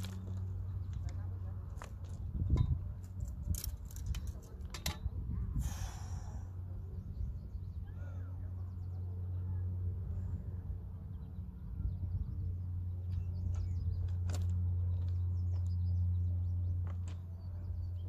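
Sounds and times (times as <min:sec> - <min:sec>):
low hum: 0:00.0 - 0:18.0
faint birds chirping: 0:03.6 - 0:18.0.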